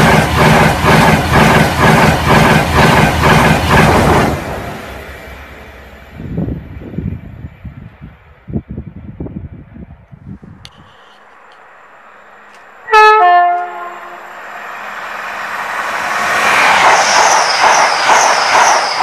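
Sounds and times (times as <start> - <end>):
train wheels rushing on rail: 0.0 - 19.0
high whine: 10.4 - 15.6
train two-tone horn: 12.8 - 14.4.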